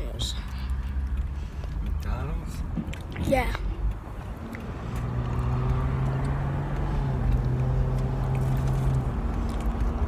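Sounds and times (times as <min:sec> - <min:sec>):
car engine hum: 0:00.0 - 0:10.0
road noise rumble: 0:00.0 - 0:10.0.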